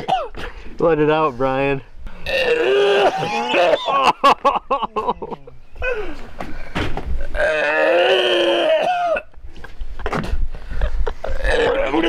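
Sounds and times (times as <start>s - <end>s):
man retching and vomiting: 0.0s - 0.4s, 2.2s - 4.3s, 7.2s - 9.3s, 11.2s - 12.0s.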